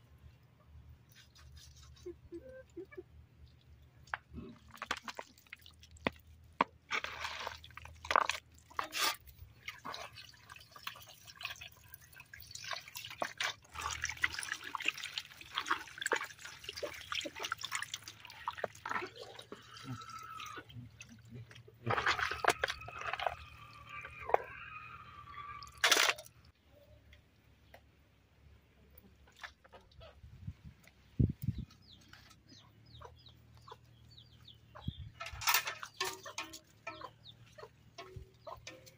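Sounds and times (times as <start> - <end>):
water pouring from a bowl: 4.5 - 6.3, 7.0 - 26.3
meat splashing and squelching: 4.6 - 24.2.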